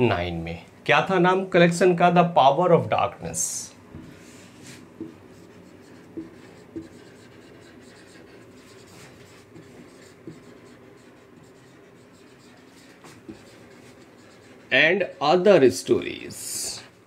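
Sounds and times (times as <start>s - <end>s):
marker pen writing on whiteboard: 3.9s - 16.5s.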